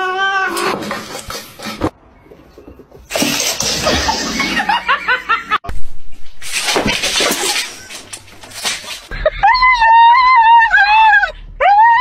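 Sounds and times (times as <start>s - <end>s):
person laughing: 9.1s - 9.9s.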